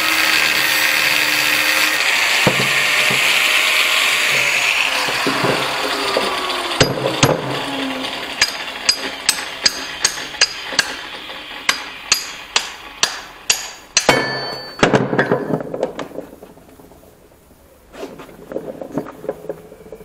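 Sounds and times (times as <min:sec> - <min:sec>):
clatter of knocks: 0:14.0 - 0:17.0.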